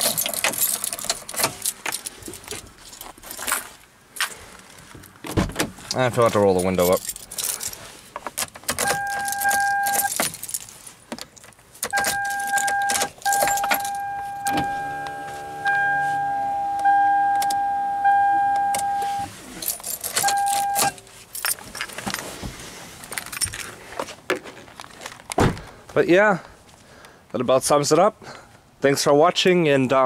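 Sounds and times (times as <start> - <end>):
keys jangling and clicking: 0.0 - 3.7, 6.6 - 7.8, 8.4 - 15.2, 19.6 - 22.2, 23.1 - 23.7
car warning tone: 8.8 - 10.1, 11.9 - 19.4, 20.2 - 21.0
power window motor humming: 12.2 - 19.3.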